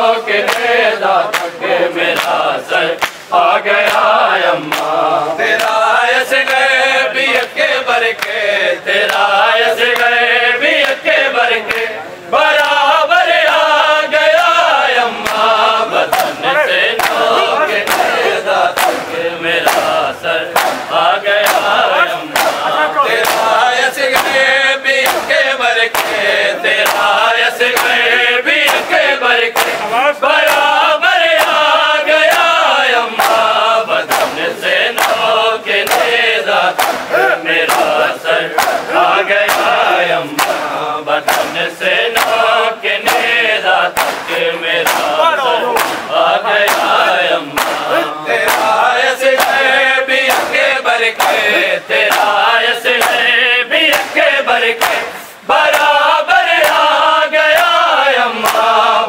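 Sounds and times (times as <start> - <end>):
men chanting in unison: 0.0 - 59.0
hands slapping bare chests: 0.4 - 0.7, 1.3 - 5.0, 5.6 - 5.8, 8.2 - 8.4, 15.2 - 20.0, 20.6 - 53.3, 53.9 - 56.0, 56.6 - 58.8.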